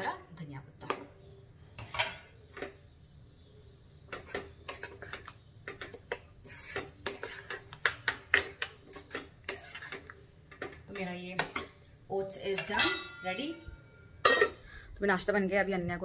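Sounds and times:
metal spoon scraping a pan: 1.8s - 3.0s, 4.0s - 14.7s.

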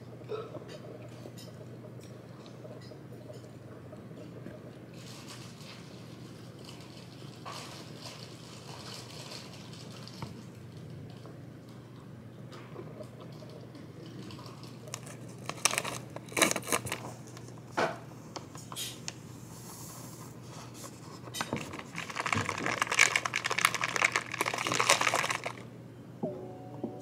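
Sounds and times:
sachet crinkling and tearing: 14.9s - 17.1s, 21.6s - 25.6s
shaker cup rattling: 21.3s - 25.7s
powder pouring: 21.7s - 25.7s.

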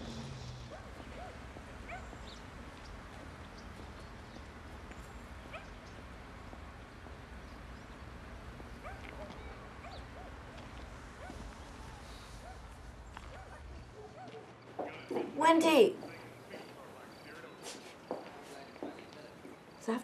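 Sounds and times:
small birds chirping: 0.0s - 15.4s, 16.0s - 20.0s
distant traffic rumble: 0.0s - 20.0s.

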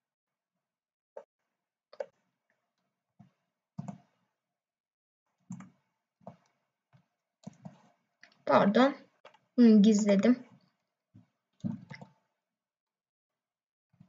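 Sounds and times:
mouse and keyboard clicks: 5.5s - 6.6s.

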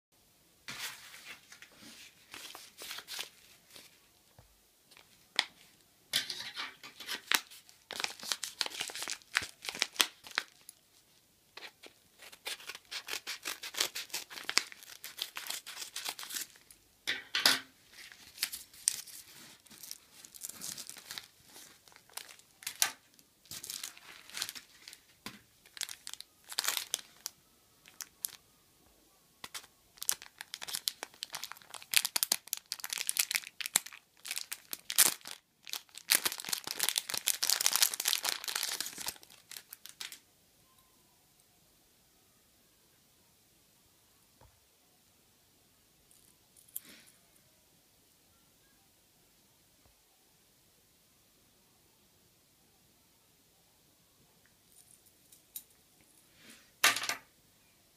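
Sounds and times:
plastic bag crinkling: 6.3s - 11.0s, 11.6s - 16.8s, 17.8s - 28.4s, 29.4s - 40.2s
paper envelope tearing: 11.6s - 16.6s.

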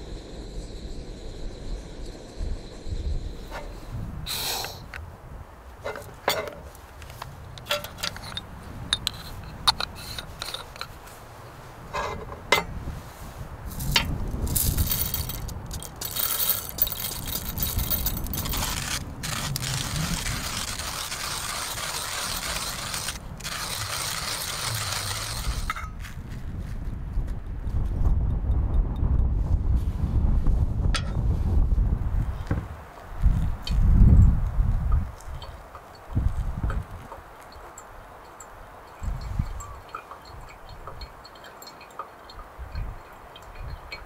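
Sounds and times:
metal cups clinking: 13.9s - 18.9s, 37.5s - 44.0s
coffee beans rattling into grinder: 14.5s - 25.8s
hand grinder grinding beans: 14.6s - 25.9s.

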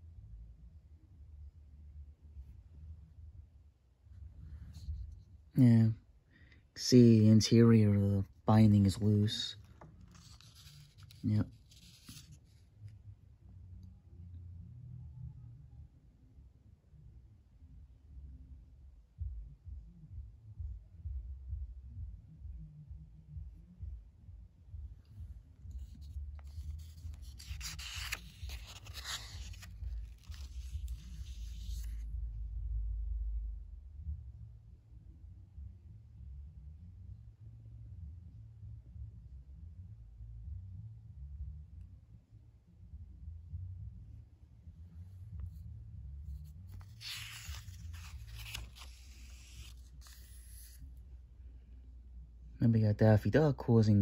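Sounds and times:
comic book pages rustling: 8.7s - 12.7s, 25.8s - 32.0s, 46.4s - 50.8s.

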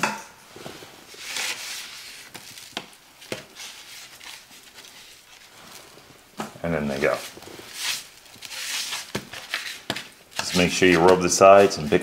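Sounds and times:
ribs scraping on a metal pan: 1.1s - 2.4s, 3.3s - 5.9s, 7.0s - 12.0s.

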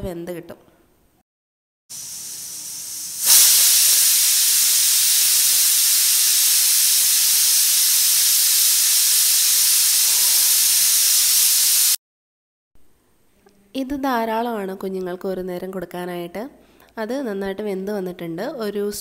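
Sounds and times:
pressure cooker whistle hissing: 1.9s - 12.0s.

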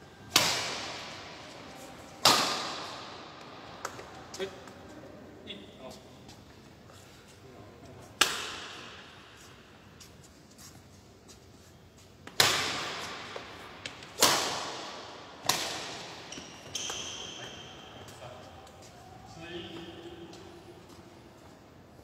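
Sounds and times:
rackets hitting shuttlecock: 0.3s - 1.4s, 2.2s - 4.8s, 8.2s - 9.4s, 12.2s - 18.2s.

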